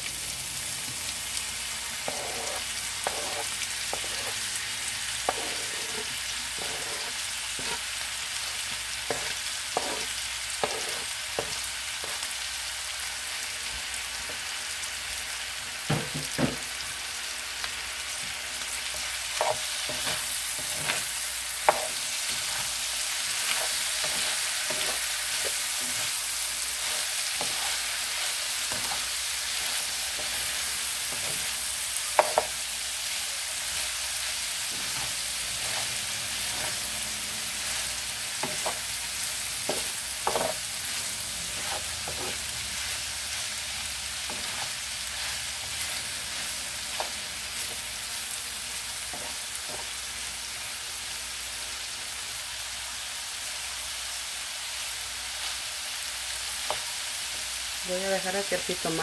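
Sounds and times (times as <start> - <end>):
food sizzling in a frying pan: 0.0 - 59.0
spatula scraping a pan: 2.0 - 8.0, 9.0 - 12.3, 18.6 - 47.9, 49.0 - 50.0.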